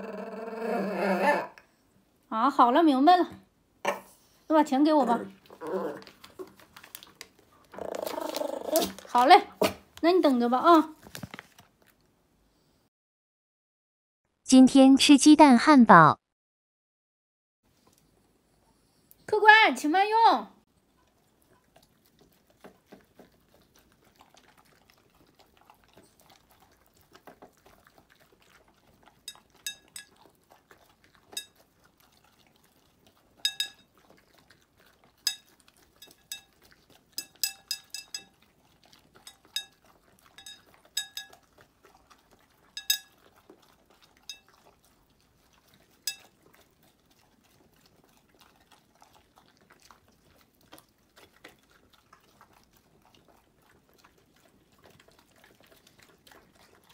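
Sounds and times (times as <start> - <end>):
dogs eating: 4.1 - 12.0, 20.7 - 56.9.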